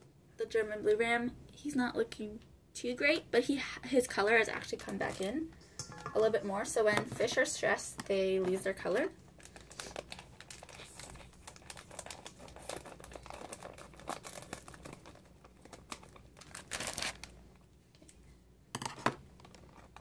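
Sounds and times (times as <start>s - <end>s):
plastic bag crinkling: 8.2s - 17.4s.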